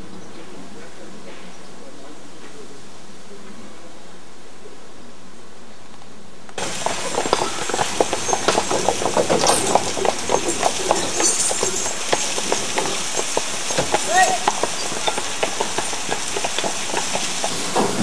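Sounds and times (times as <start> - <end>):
steady hiss: 1.2 - 18.0
water splashing onto water wheel: 6.6 - 18.0.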